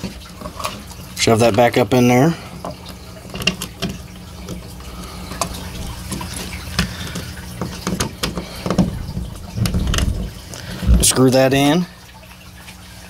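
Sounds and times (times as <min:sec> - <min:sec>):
low hum: 0:08.6 - 0:11.2.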